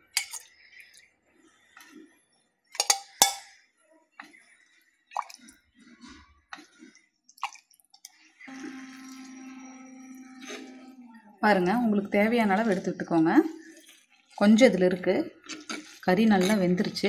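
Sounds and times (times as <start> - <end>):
ladle clinking against bowl: 0.2 - 0.5, 2.8 - 3.5
liquid pouring and dripping: 5.1 - 5.8, 6.5 - 8.3.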